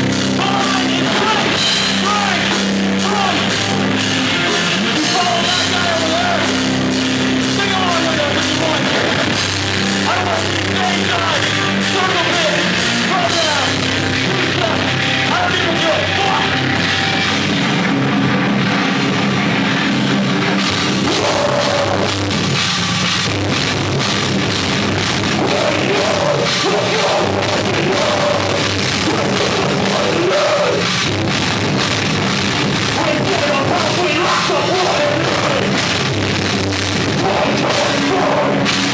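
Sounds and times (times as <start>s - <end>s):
bass guitar: 0.0s - 38.9s
drum kit: 0.0s - 38.9s
electric guitars: 0.0s - 38.9s
person singing into microphone: 25.3s - 30.9s.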